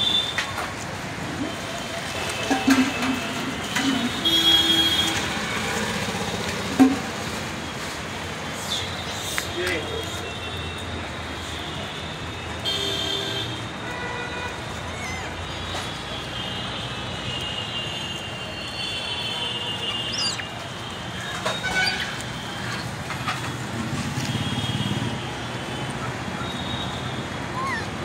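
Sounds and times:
traffic rumble: 0:00.0 - 0:28.0
rising chirp: 0:19.8 - 0:20.5.

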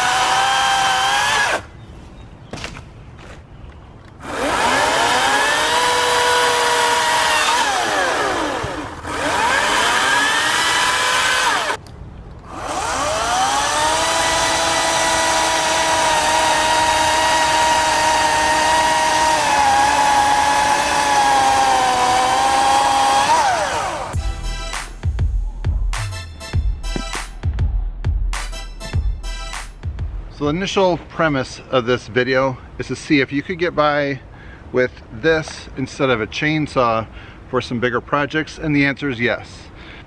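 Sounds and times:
electric chainsaw cutting logs: 0:00.0 - 0:01.7, 0:04.2 - 0:11.8, 0:12.5 - 0:24.2.

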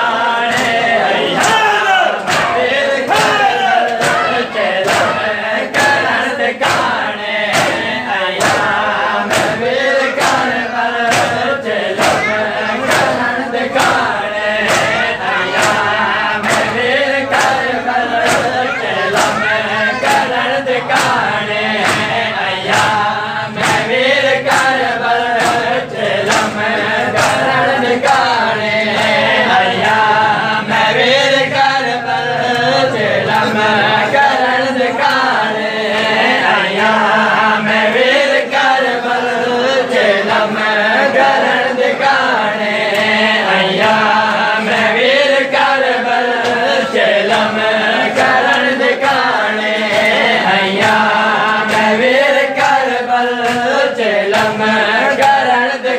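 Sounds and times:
men chanting a lament: 0:00.0 - 0:55.9
chest-beating slaps: 0:00.4 - 0:30.1, 0:33.3 - 0:33.5.

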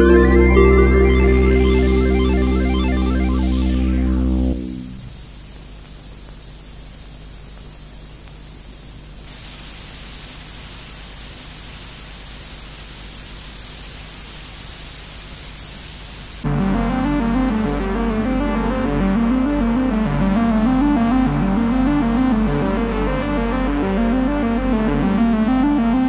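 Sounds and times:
low hum: 0:00.0 - 0:05.2, 0:16.4 - 0:26.0
static hiss: 0:00.0 - 0:25.1.

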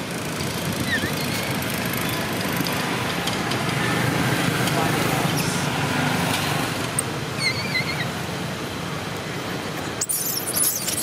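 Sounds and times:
baby monkey squealing: 0:00.8 - 0:01.4, 0:07.4 - 0:08.1, 0:10.0 - 0:11.0.

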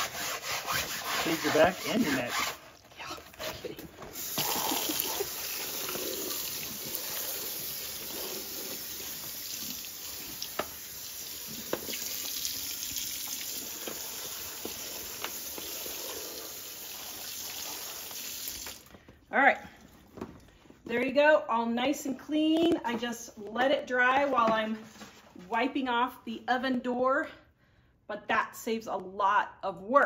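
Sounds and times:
tap running into sink: 0:10.3 - 0:10.8, 0:11.5 - 0:12.4.

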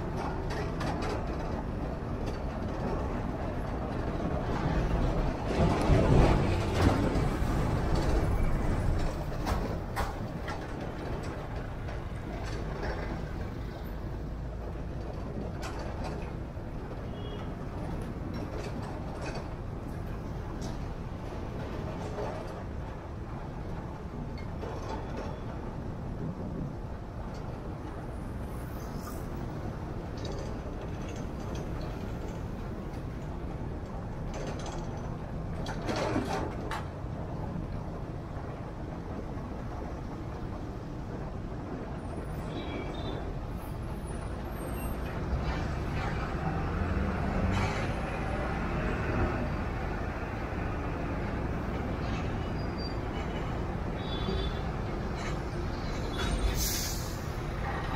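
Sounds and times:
truck rolling past: 0:00.0 - 0:22.8, 0:43.0 - 0:57.9
heavy traffic rumble: 0:00.0 - 0:57.9.

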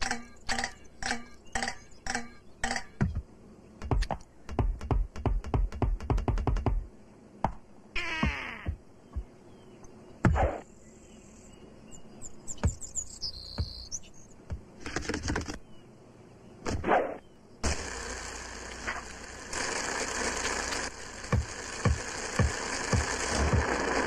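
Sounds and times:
cartoon knocks chirps and swishes: 0:10.2 - 0:10.7, 0:16.6 - 0:17.3.

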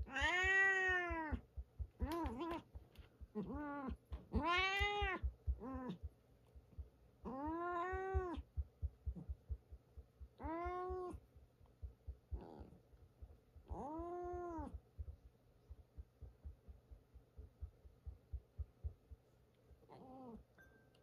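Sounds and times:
cat meowing: 0:00.0 - 0:01.4, 0:02.0 - 0:02.6, 0:03.4 - 0:06.0, 0:07.2 - 0:08.4, 0:10.4 - 0:11.2, 0:13.7 - 0:14.8.

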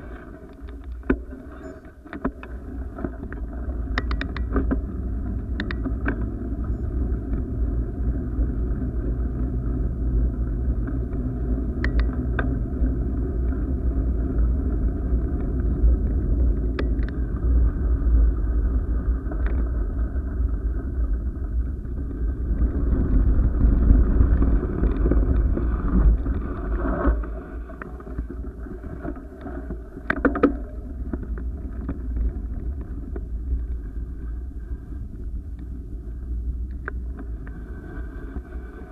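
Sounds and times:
wind buffeting microphone: 0:03.2 - 0:38.9
sharp clicks and rattles: 0:03.3 - 0:04.8.

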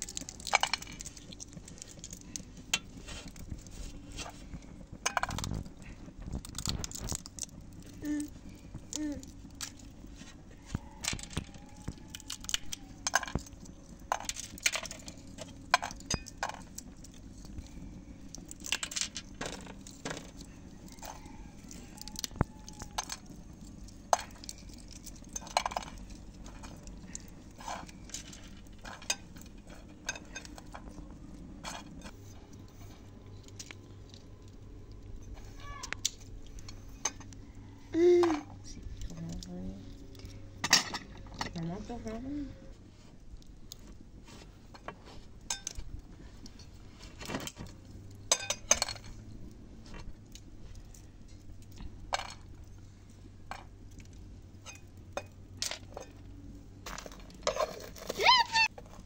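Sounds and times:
walnut shells cracking: 0:00.0 - 0:03.7, 0:04.6 - 0:37.6.

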